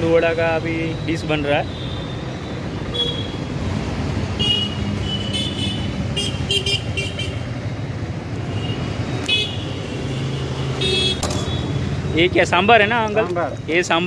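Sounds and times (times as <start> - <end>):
street traffic rumble: 0.0 - 14.0
vehicle horns tooting: 2.9 - 3.5, 4.4 - 7.4, 8.5 - 12.0.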